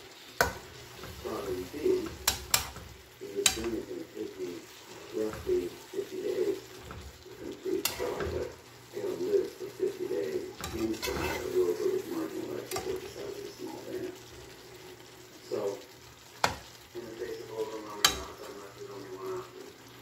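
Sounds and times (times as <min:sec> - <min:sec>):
food sizzling in a pan: 0:00.0 - 0:20.0
spatula clicking against pan: 0:00.4 - 0:00.7, 0:02.0 - 0:03.8, 0:16.4 - 0:16.7, 0:18.0 - 0:18.3.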